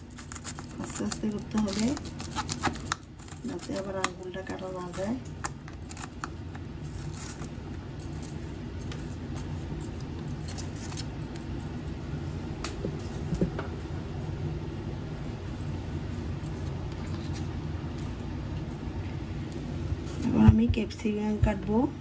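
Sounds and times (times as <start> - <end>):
knife shredding cabbage: 0.0 - 11.8
low background hum: 0.0 - 22.0.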